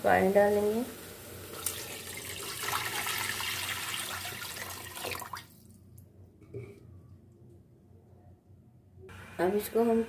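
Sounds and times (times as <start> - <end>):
water pouring into metal pot: 1.5 - 5.5.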